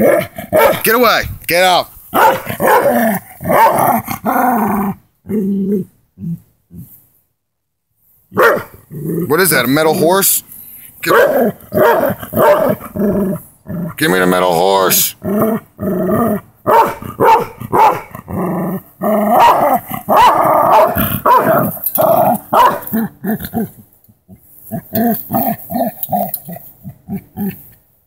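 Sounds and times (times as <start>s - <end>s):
dog growling: 2.3s - 7.0s, 8.6s - 9.4s, 11.1s - 27.8s.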